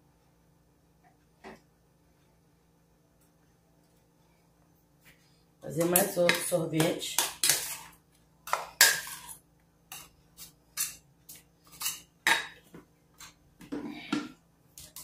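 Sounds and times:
metal spoon clinking and scraping: 5.8s - 12.1s.

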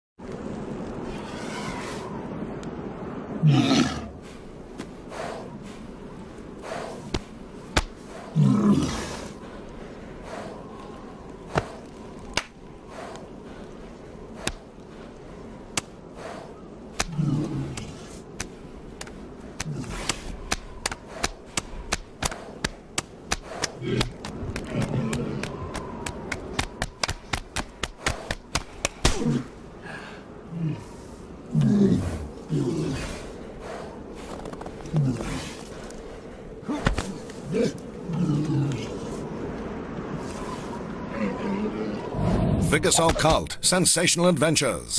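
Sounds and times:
wind blowing: 0.2s - 43.9s
walrus bellowing: 3.3s - 4.3s, 8.0s - 9.6s, 23.4s - 26.6s, 36.6s - 39.3s, 40.4s - 42.7s
hands slapping flippers: 7.1s - 8.0s, 11.5s - 13.2s, 14.4s - 14.7s, 17.7s - 29.2s.

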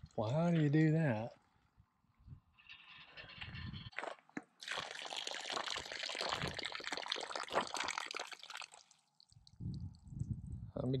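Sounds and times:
water pouring and splashing from pipe: 4.6s - 9.6s.

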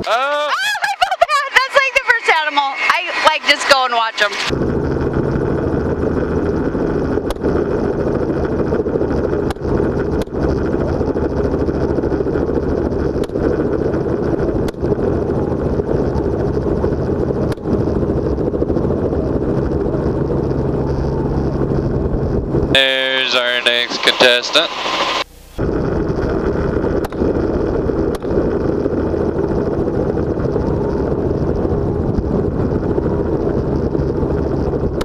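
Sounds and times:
helicopter engine and rotor: 1.4s - 35.0s
sharp clicks: 7.2s - 7.5s, 13.2s - 13.4s, 27.0s - 27.3s, 28.1s - 28.4s.

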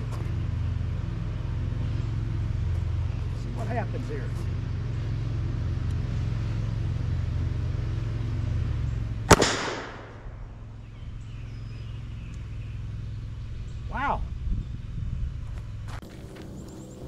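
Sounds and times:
low rumble: 0.0s - 17.0s
pistol shot with ringing tail: 9.3s - 10.5s.

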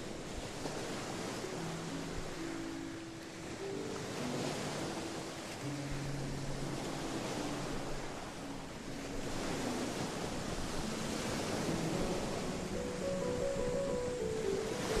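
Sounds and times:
faint sustained musical tones: 0.0s - 15.0s
waves breaking on a beach: 0.0s - 15.0s.

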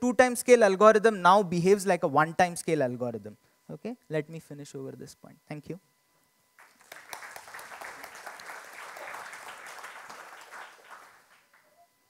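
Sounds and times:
audience applauding: 6.6s - 11.7s.

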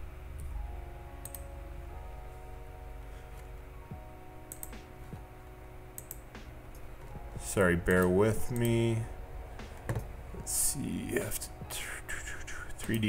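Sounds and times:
soft music of long held notes: 0.0s - 13.0s
faint clicks: 1.2s - 1.5s, 4.5s - 4.9s, 6.0s - 7.2s.

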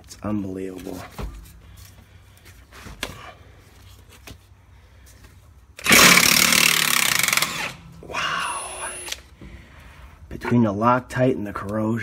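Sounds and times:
impact wrench hammering: 5.8s - 8.0s.

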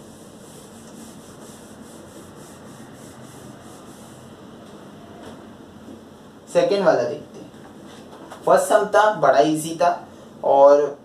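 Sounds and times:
cloth rubbing whiteboard: 0.0s - 4.4s.

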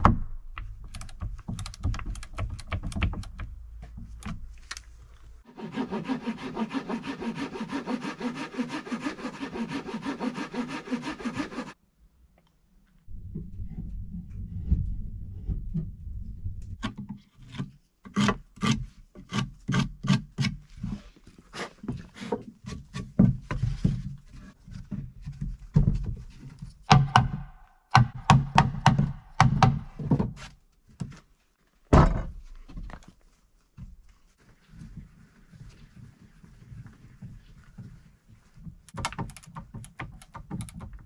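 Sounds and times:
wooden beams knocking: 0.0s - 4.5s, 26.9s - 30.4s, 31.9s - 32.9s.

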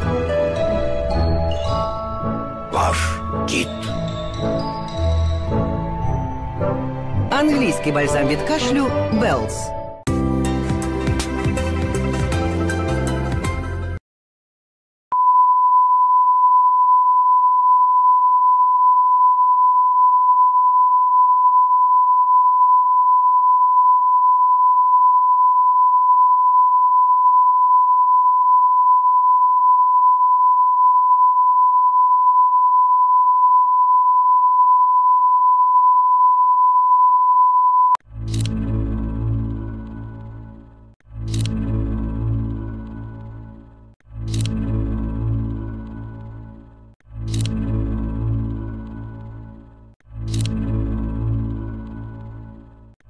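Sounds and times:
advert music: 0.0s - 14.0s.

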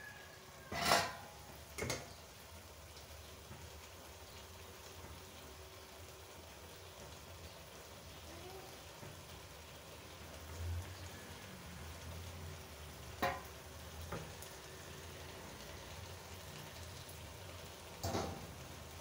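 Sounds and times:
food sizzling in a wok: 0.0s - 19.0s
metal spoon knocking on pan: 13.2s - 13.5s.

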